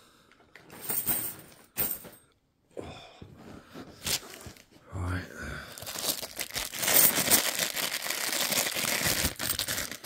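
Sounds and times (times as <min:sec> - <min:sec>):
plastic bags crinkling: 0:05.8 - 0:10.0.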